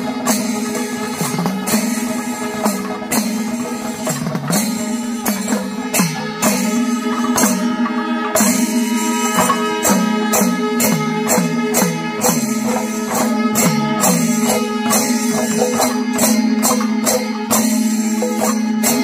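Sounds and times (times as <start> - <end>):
cymbals crashing: 0.0 - 19.0
drums with sliding pitch: 0.0 - 19.0
steady held tone: 4.7 - 18.7.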